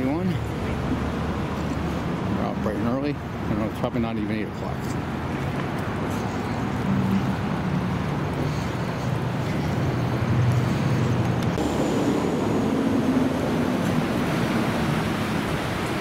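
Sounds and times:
motor vehicle passing: 4.8s - 16.0s.

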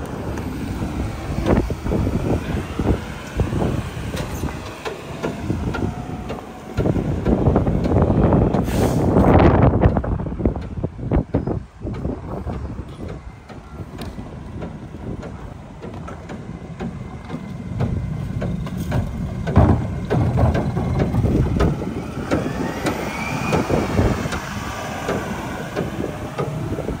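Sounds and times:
diesel truck engine running: 0.0s - 27.0s
truck clanks and knocks: 0.0s - 27.0s
wavering high whine: 18.2s - 27.0s.

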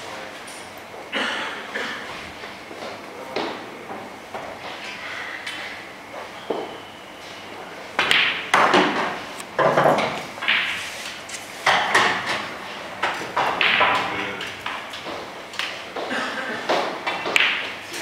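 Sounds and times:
cue striking ball: 8.0s - 11.0s, 11.7s - 15.2s, 16.7s - 17.8s
pool balls knocking: 8.0s - 11.0s, 11.6s - 18.0s.

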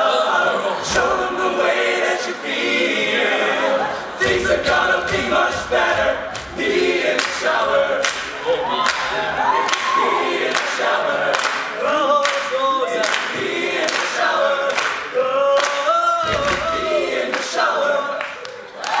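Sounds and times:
male group singing in harmony: 0.0s - 18.4s
sharp beat: 4.2s - 7.1s.

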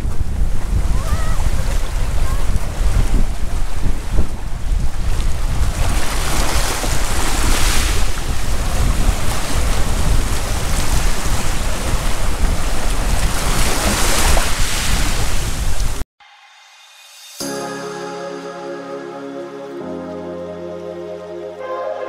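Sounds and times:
wind rumbling on microphone: 0.0s - 16.0s
sea surf breaking: 5.6s - 16.0s.

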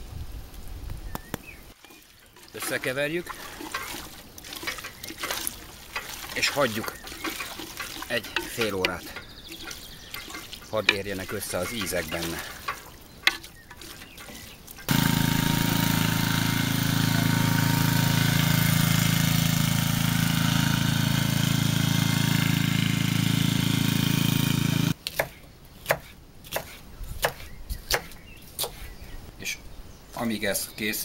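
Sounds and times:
walking tractor engine running: 2.4s - 25.0s
knife chopping on wooden board: 25.1s - 28.9s.

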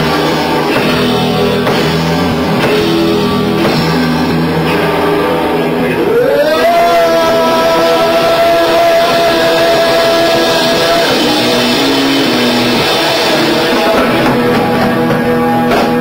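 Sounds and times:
rock band playing loudly: 0.0s - 16.0s.

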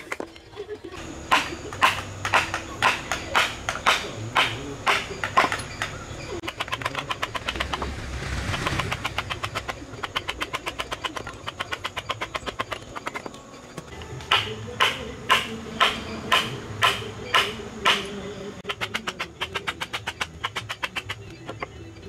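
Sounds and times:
mallet striking chisel: 1.2s - 7.9s, 14.2s - 21.7s.

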